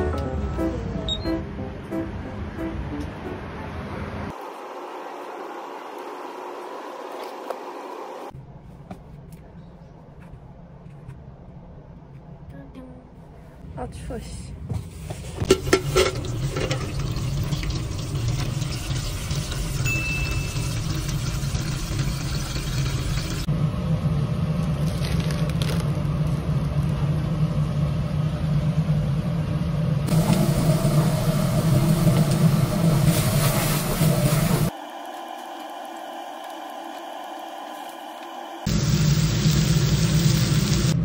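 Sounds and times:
tap water running into steel container: 15.5s - 23.5s.

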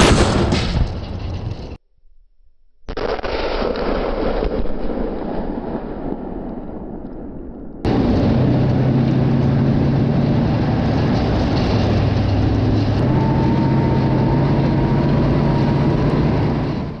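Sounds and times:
tank tracks: 0.0s - 1.8s, 7.9s - 17.0s
tank diesel engine running: 7.9s - 17.0s
thin high whine: 13.0s - 17.0s.

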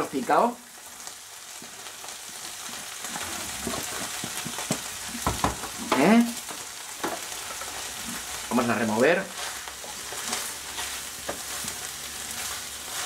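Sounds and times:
food sizzling in a frying pan: 0.0s - 13.0s
wooden spoon scraping and knocking: 3.1s - 6.1s, 9.2s - 13.0s.

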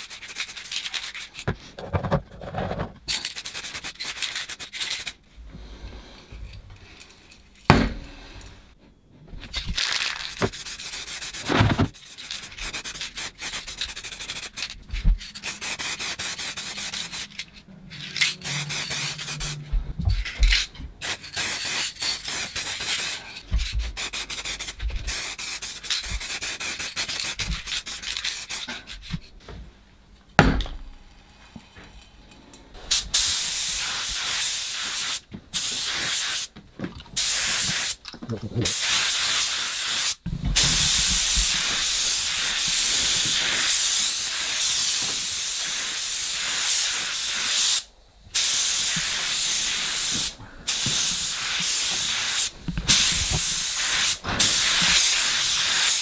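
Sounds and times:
spray can hissing: 3.2s - 5.2s, 10.1s - 17.4s, 18.1s - 19.7s, 21.0s - 28.7s, 32.9s - 36.5s, 37.2s - 38.0s, 38.6s - 56.0s.

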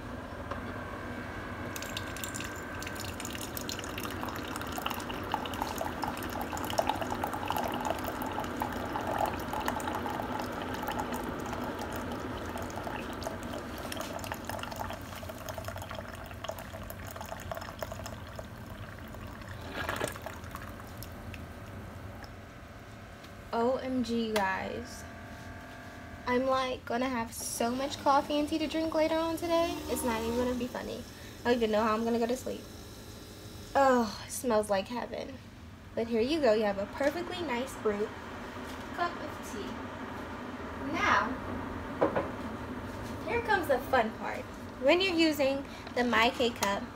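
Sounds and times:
coffee machine hum: 0.0s - 46.9s
water pouring into mug: 1.8s - 21.4s
water sputter: 1.8s - 21.4s.

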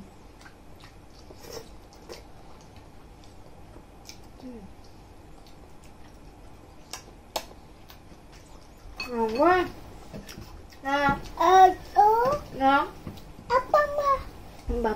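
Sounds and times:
quiet eating sounds: 0.0s - 14.9s
soft voice sound: 4.4s - 4.9s.

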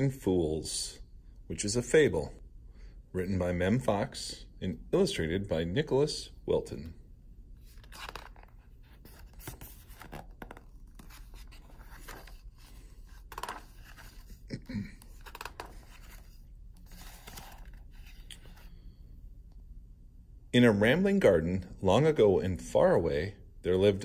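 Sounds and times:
book pages turning: 7.6s - 18.9s.

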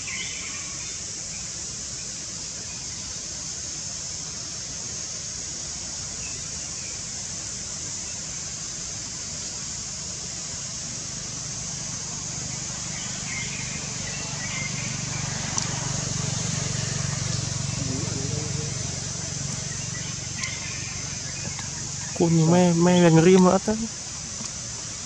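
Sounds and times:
steady high hiss: 0.0s - 25.0s
small click: 15.5s - 15.7s.

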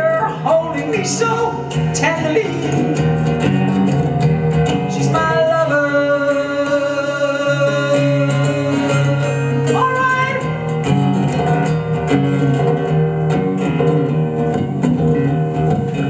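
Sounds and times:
man singing: 0.0s - 3.4s, 4.7s - 10.6s
acoustic guitar strumming: 0.0s - 16.0s.

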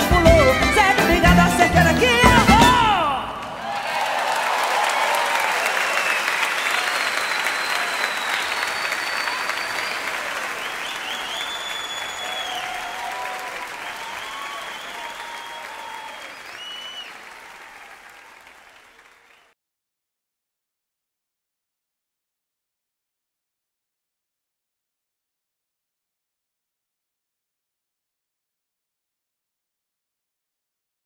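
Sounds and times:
audience applauding: 1.7s - 19.6s
crowd cheering: 1.8s - 19.6s
high whistles: 5.8s - 17.3s.

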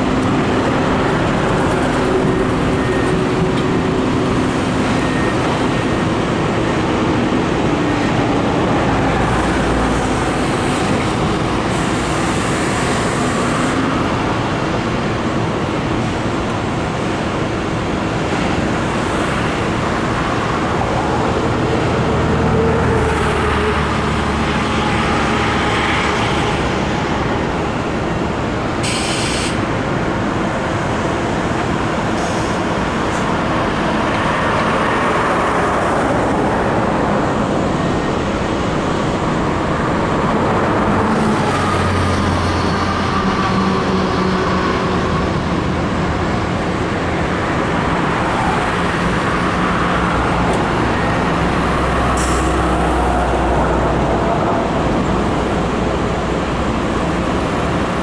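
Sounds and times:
heavy vehicle rumble: 0.0s - 58.0s
road traffic: 0.0s - 58.0s.

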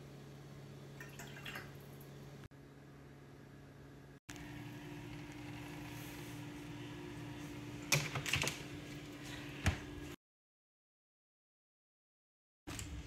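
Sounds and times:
appliance hum: 0.0s - 10.2s.

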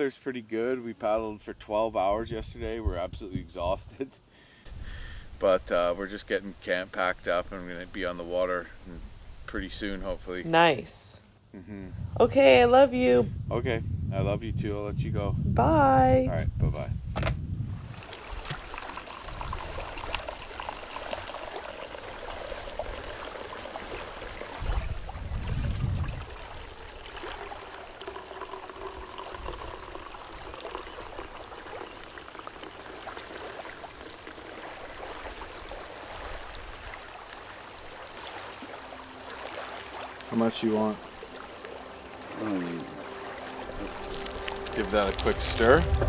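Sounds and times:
low rumble: 11.6s - 18.0s, 43.8s - 46.0s
coffee pouring into metal cup: 18.2s - 24.6s, 26.5s - 35.5s, 43.8s - 46.0s.

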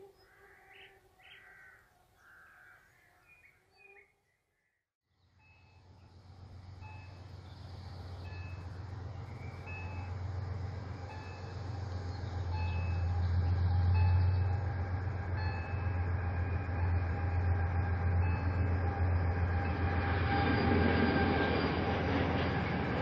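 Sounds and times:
train wheels rumbling on rails: 5.8s - 23.0s.

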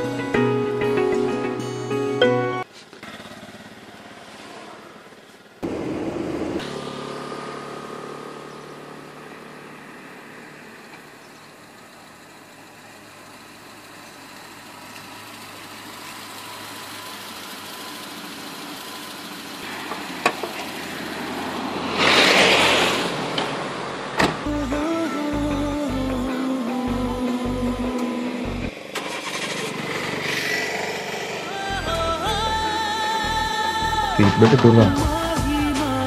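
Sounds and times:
car engine running: 2.9s - 26.3s, 26.9s - 36.0s
loud rush of noise: 5.6s - 8.2s, 19.7s - 24.2s, 28.7s - 31.6s.

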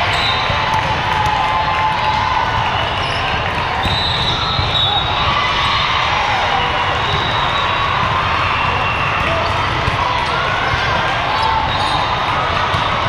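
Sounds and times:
volleyballs being hit and bounced: 0.0s - 4.8s, 7.9s - 13.0s
crowd chatter: 0.0s - 13.0s.

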